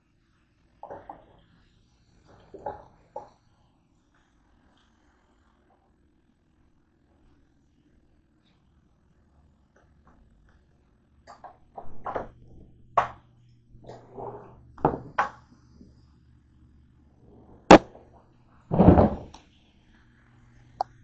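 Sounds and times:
heavy thump: 0:18.7 - 0:19.3.

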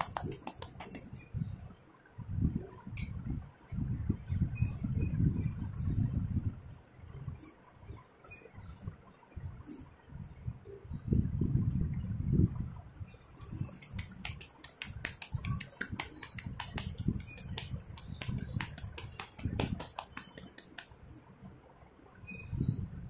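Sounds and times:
dull handling thumps: 0:13.8 - 0:20.9
sharp clicks and crackles: 0:13.8 - 0:21.0.

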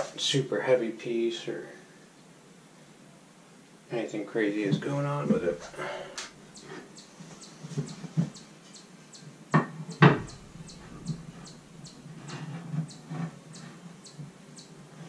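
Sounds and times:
soft handling thumps: 0:09.6 - 0:13.3
light bump: 0:10.0 - 0:12.6.

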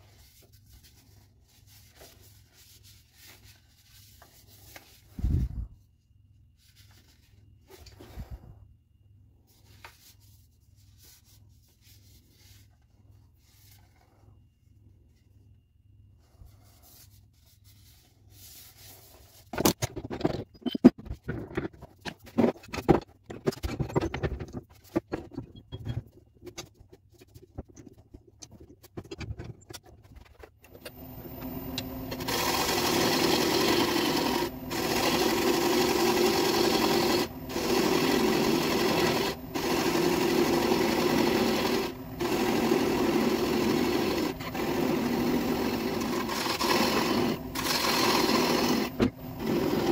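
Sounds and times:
wood lathe running: 0:31.8 - 0:49.9
gouge cutting wood: 0:32.2 - 0:49.9.

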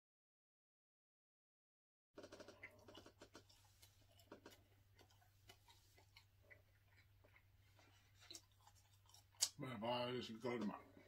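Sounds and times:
chewing: 0:02.2 - 0:11.0.

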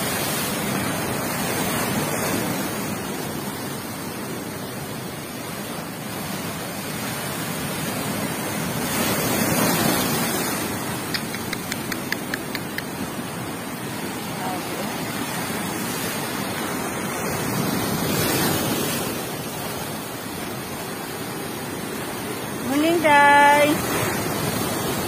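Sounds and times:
storm waves breaking on shore: 0:00.0 - 0:25.0
small ticks: 0:11.1 - 0:12.9.

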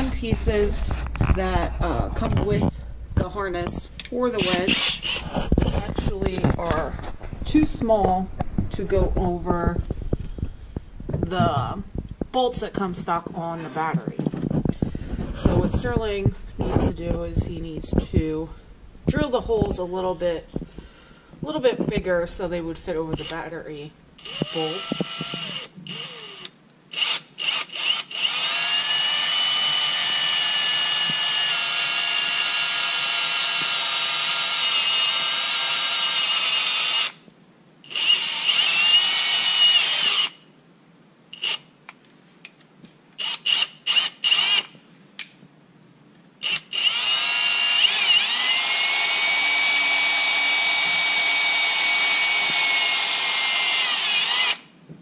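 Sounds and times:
electric drill running: 0:04.4 - 0:06.1, 0:24.2 - 0:37.2, 0:37.9 - 0:40.4, 0:41.4 - 0:41.6, 0:43.2 - 0:44.7, 0:46.4 - 0:54.7.

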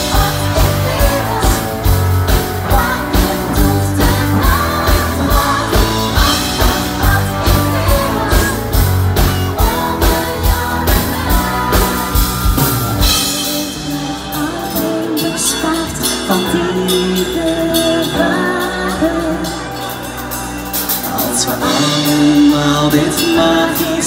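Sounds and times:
steady drum beat: 0:00.0 - 0:15.2
person singing: 0:00.0 - 0:20.2, 0:20.9 - 0:24.0
live pop-rock band: 0:00.0 - 0:24.0.

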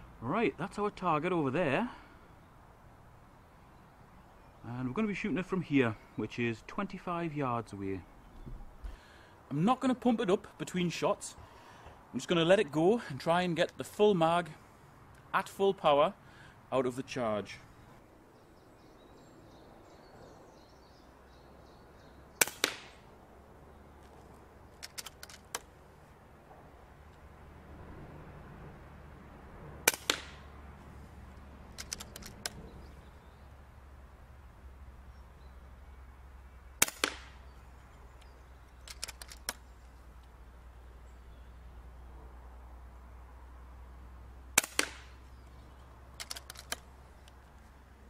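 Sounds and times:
bird singing: 0:03.3 - 0:07.2, 0:07.9 - 0:08.8, 0:17.5 - 0:22.6, 0:32.0 - 0:33.7, 0:35.0 - 0:42.2, 0:45.1 - 0:46.2
pellet impact smack: 0:22.4 - 0:23.0, 0:29.9 - 0:30.4, 0:44.6 - 0:45.2
air rifle shot crack: 0:22.4 - 0:23.1, 0:29.8 - 0:30.5, 0:36.8 - 0:37.5, 0:44.6 - 0:45.2
metallic cocking lever clicks: 0:24.8 - 0:25.7, 0:31.7 - 0:32.6, 0:38.2 - 0:39.6, 0:46.2 - 0:47.4.

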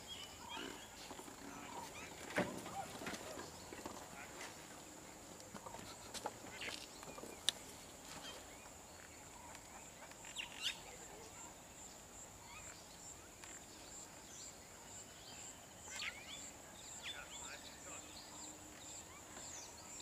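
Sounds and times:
bird chirps: 0:08.2 - 0:20.0.

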